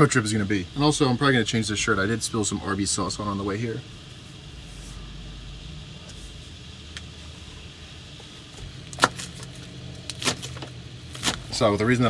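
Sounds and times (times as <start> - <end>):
vent fan humming: 0.0 - 12.0.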